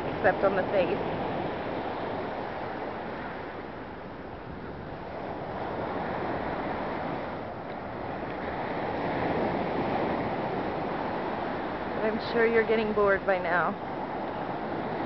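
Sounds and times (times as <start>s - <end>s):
waves breaking on shore: 0.0s - 15.0s
wind on microphone: 0.0s - 15.0s.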